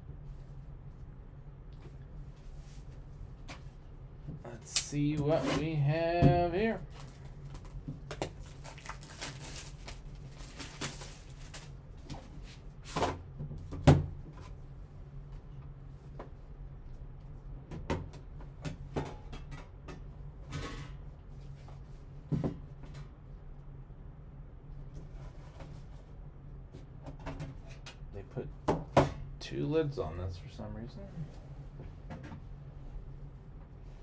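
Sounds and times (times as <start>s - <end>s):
plastic shrink wrap crinkling: 6.9s - 11.8s.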